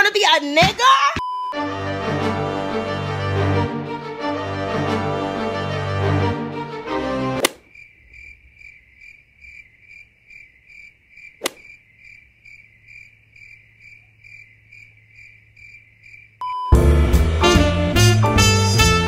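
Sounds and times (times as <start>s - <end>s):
music: 1.5s - 7.4s, 16.5s - 19.0s
sharp click: 7.4s - 7.7s
cricket chirping: 7.4s - 16.6s.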